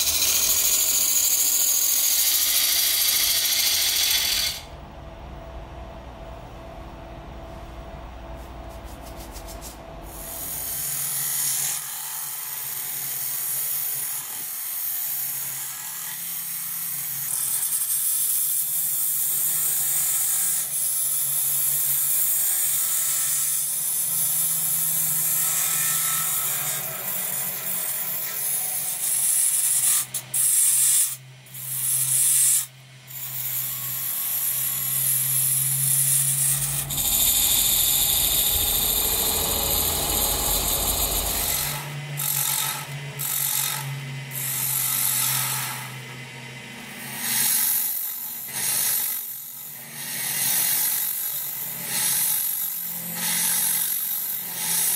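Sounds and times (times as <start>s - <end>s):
tool scraping spinning wood: 0.0s - 4.7s, 34.8s - 43.7s
lathe motor hum: 35.0s - 44.5s.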